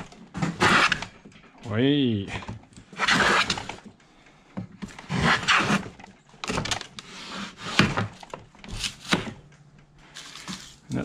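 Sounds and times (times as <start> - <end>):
hand plane shaving wood: 0.4 - 1.1, 2.9 - 3.8, 5.0 - 6.0, 7.0 - 7.9.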